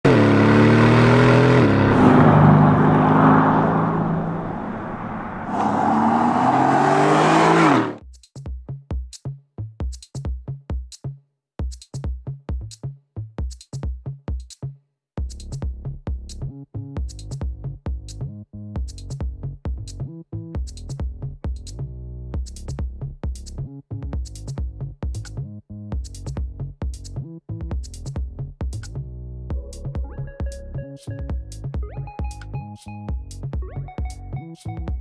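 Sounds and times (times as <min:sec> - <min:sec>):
car engine accelerating hard: 0:00.0 - 0:08.0
electronic music with drum beat: 0:09.8 - 0:14.6, 0:15.2 - 0:21.8, 0:22.4 - 0:25.4, 0:26.0 - 0:35.0.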